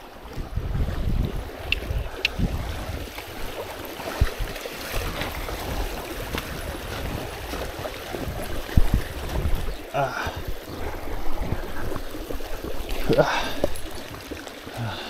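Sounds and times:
river water flowing: 0.0 - 15.0
wind buffeting microphone: 0.0 - 15.0.

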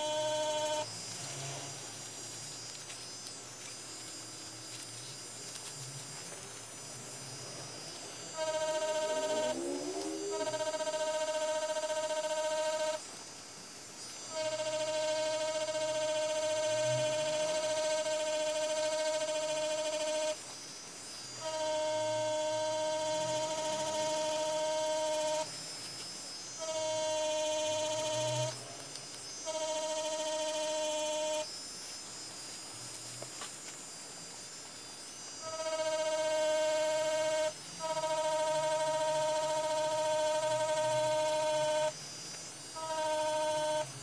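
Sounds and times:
tattoo machine humming: 0.0 - 3.8, 6.7 - 13.1, 14.2 - 20.4, 21.2 - 25.6, 26.4 - 31.5, 35.3 - 44.0.

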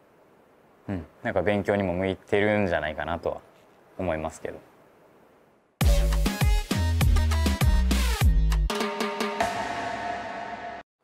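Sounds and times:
drum hits: 8.7 - 10.8.

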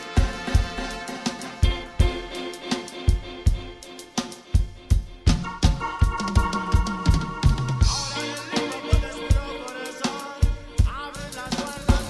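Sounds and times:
fast kick drum beat: 0.1 - 12.0
held higher notes: 1.7 - 10.2
bass line: 4.5 - 9.8.

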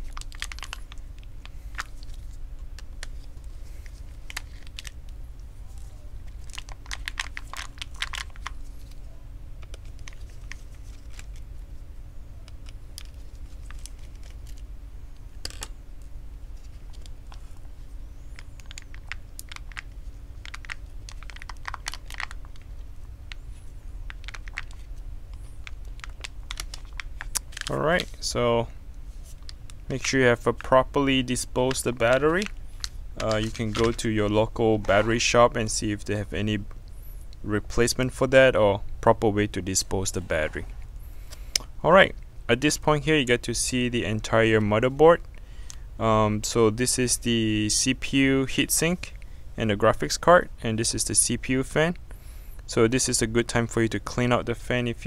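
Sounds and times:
plastic clicks and crinkling: 0.0 - 5.0, 6.2 - 9.0, 16.6 - 23.4, 24.1 - 28.2, 31.7 - 34.0
faint steady hum: 0.0 - 55.0.

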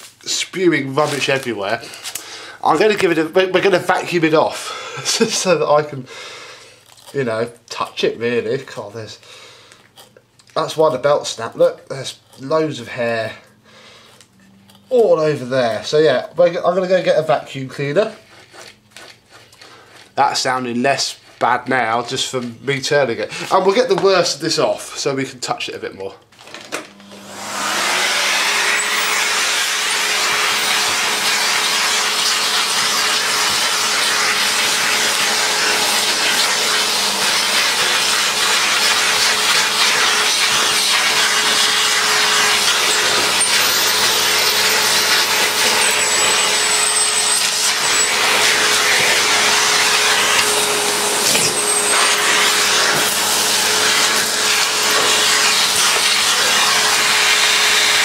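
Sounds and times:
vacuum cleaner running: 26.8 - 58.0.

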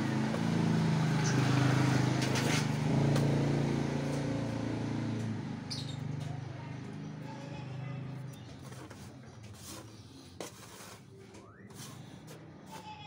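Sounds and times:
motor engine running: 0.0 - 10.3.

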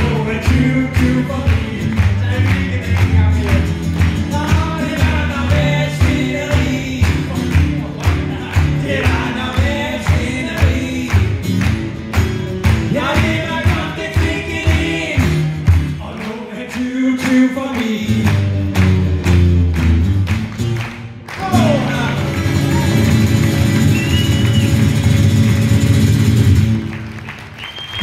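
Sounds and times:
man singing: 0.0 - 11.4, 12.8 - 18.5
acoustic guitars strummed: 0.0 - 27.2.

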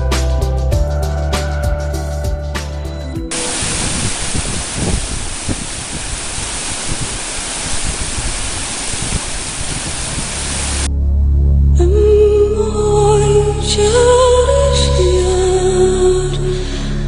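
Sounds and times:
music: 0.0 - 3.4, 10.9 - 17.0
stream rushing over rocks: 3.3 - 10.9.

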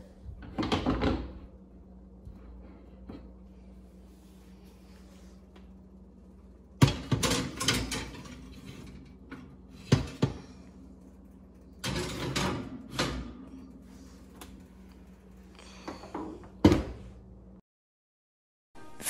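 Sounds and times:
metal tins clanking on oven rack: 6.8 - 10.5, 11.8 - 13.4.

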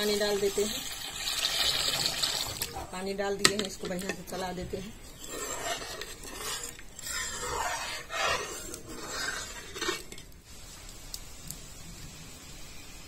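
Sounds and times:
metal ladle scraping an iron pan: 3.4 - 10.4.

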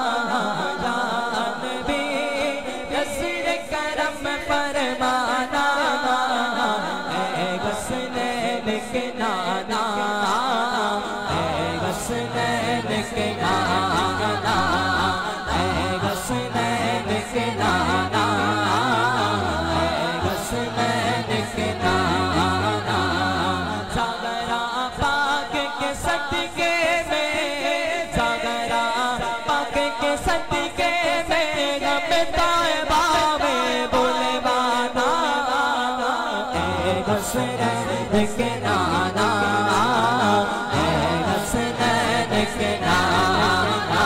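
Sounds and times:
low vocal drone: 0.0 - 44.0
man singing with echo: 0.0 - 44.0.

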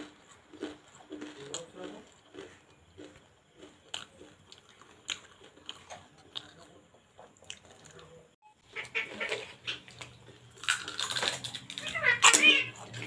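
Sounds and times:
crunching of fried shells: 0.0 - 13.0.

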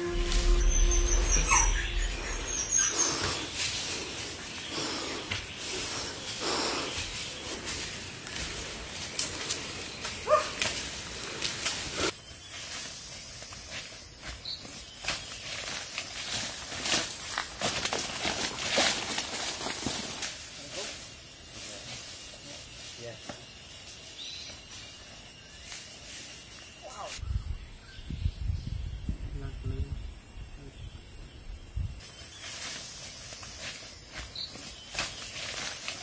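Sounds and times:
insects hissing: 0.0 - 27.3, 29.0 - 36.0
footsteps crunching on dry leaves: 2.6 - 22.4, 32.0 - 36.0
dog rustling through leaves: 9.8 - 21.0, 32.1 - 36.0.

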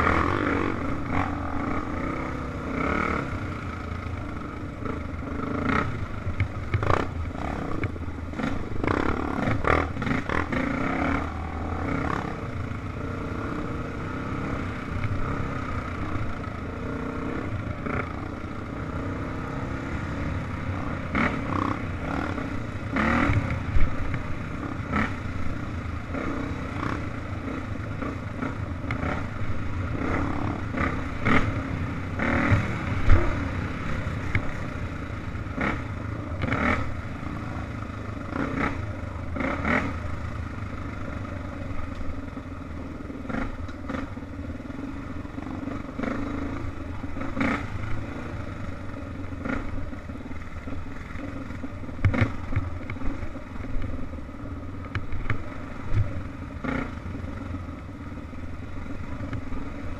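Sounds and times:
dirt bike engine running: 0.0 - 59.9
bike knocking and rattling on bumps: 6.3 - 7.1, 51.9 - 53.9.

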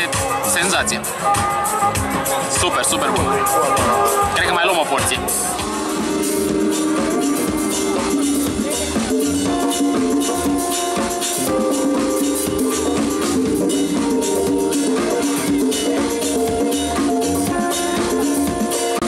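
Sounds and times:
congas and hand percussion: 0.0 - 19.0
saxophone melody: 0.0 - 19.0.

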